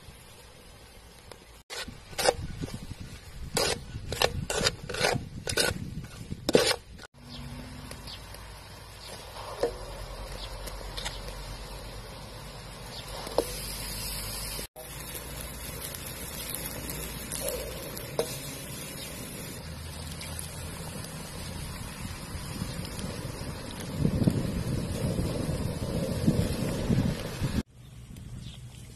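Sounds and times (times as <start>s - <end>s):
sharp scraping strokes: 1.6s - 7.1s
steady cooking hiss: 8.0s - 27.7s.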